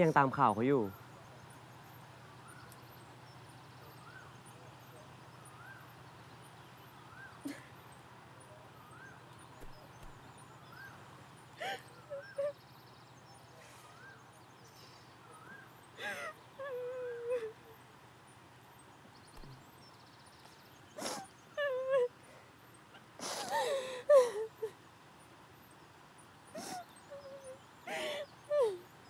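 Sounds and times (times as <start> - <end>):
woman sobbing: 7.4 - 7.8, 11.6 - 12.7, 16.0 - 17.8, 21.0 - 24.8, 26.5 - 28.9.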